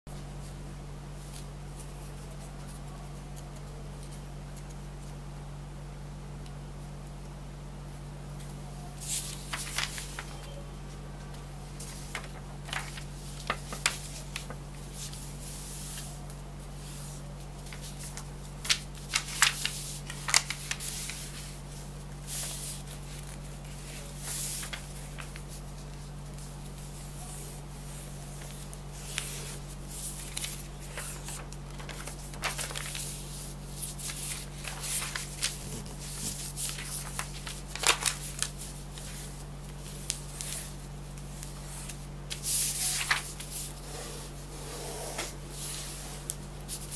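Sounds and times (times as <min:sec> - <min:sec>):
paper rustling and crinkling: 0:09.0 - 0:44.5, 0:45.1 - 0:46.9.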